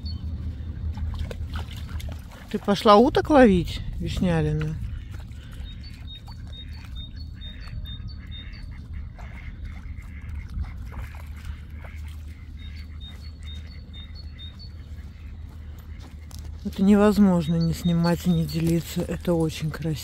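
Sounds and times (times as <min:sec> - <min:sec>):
low wind rumble on microphone: 0:00.0 - 0:20.0.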